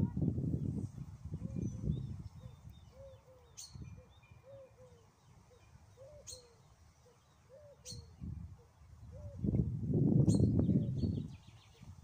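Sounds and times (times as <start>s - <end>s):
small birds chirping: 0.6s - 9.5s
dove cooing: 2.4s - 3.6s, 4.4s - 5.1s, 6.0s - 6.6s, 7.5s - 8.0s.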